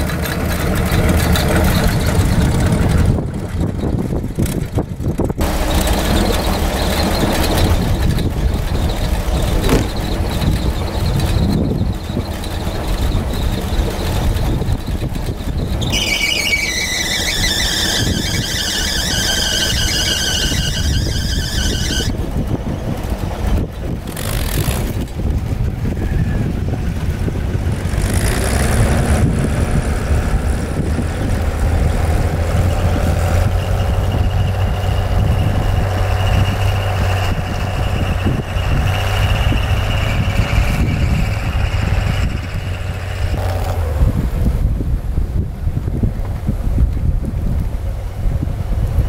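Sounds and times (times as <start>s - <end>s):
snow plow rumbling: 0.0s - 49.0s
high loud machine squeal: 5.4s - 22.5s, 32.6s - 43.6s.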